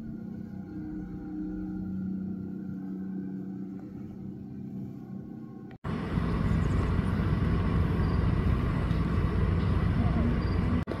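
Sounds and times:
mower engine humming: 5.8s - 11.0s.

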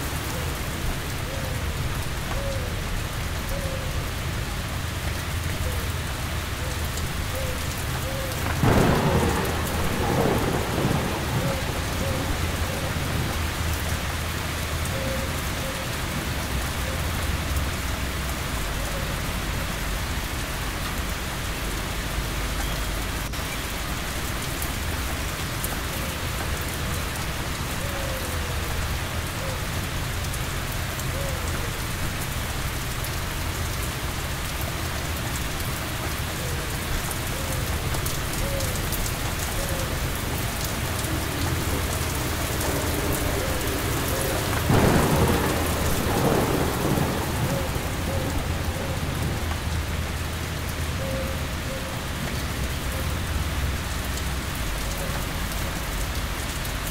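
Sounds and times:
heavy rain falling: 0.0s - 56.9s
thunder rumbling: 7.2s - 17.4s, 37.2s - 51.8s.

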